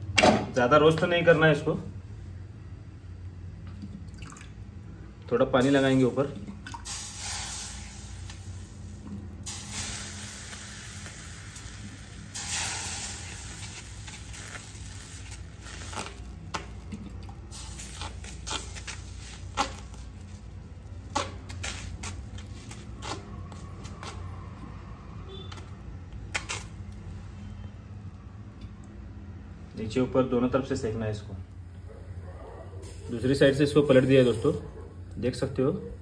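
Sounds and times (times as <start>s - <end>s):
water sizzling on hot griddle: 6.8s - 22.9s.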